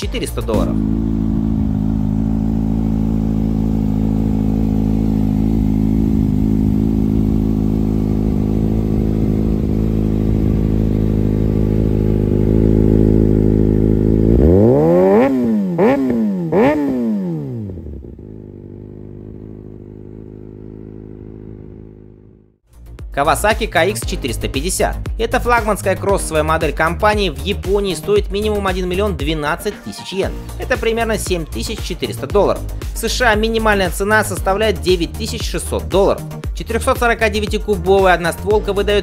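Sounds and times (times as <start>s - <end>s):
motorcycle engine idling: 0.0s - 16.6s, 17.8s - 22.6s
motorcycle throttle revving: 0.0s - 22.5s.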